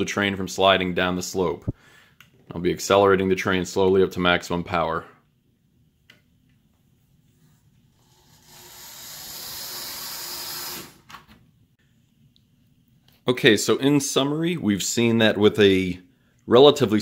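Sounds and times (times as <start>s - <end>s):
model train motor whirring: 8.0s - 11.0s.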